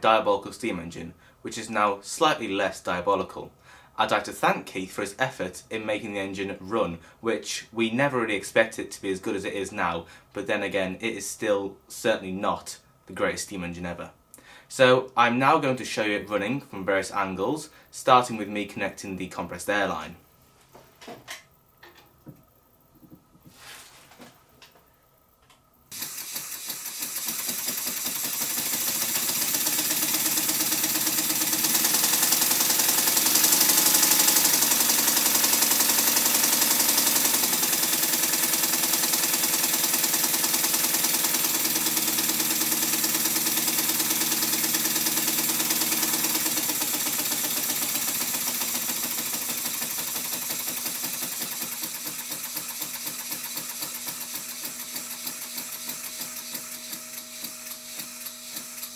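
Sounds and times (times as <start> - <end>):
model steam engine beating: 26.0 - 56.7.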